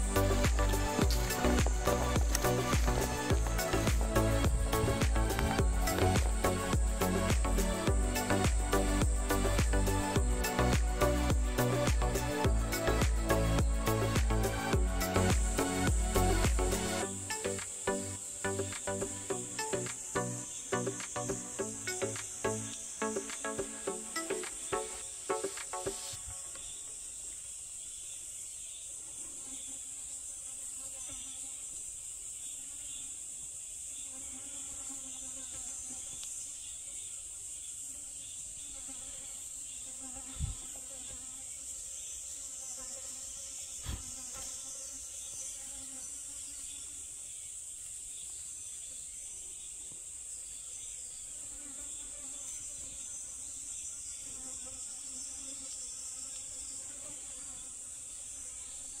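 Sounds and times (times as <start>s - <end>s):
high-pitched insect drone: 0.0s - 33.2s.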